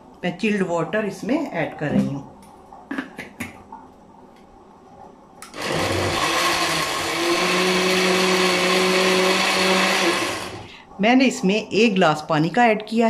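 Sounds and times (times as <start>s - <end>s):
blender pureeing fruit: 5.5s - 10.7s.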